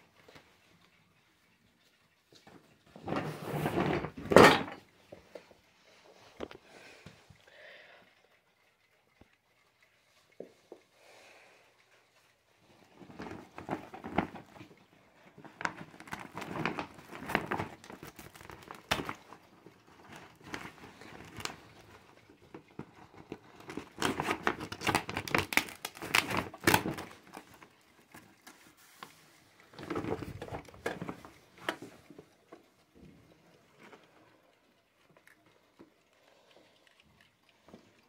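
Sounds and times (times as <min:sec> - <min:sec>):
plastic bag crinkling: 0:12.9 - 0:28.5.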